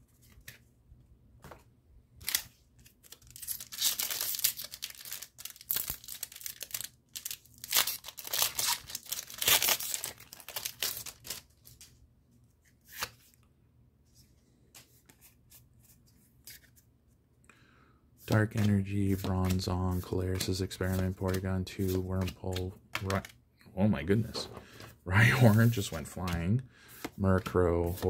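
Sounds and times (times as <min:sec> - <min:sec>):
foil wrapper tearing and crinkling: 0:03.0 - 0:11.6.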